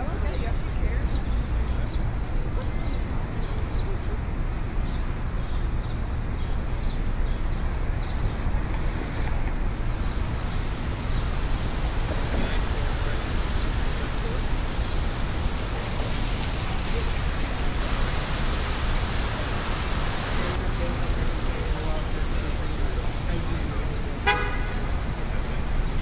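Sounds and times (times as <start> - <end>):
steady ambient hiss: 9.5 - 26.0.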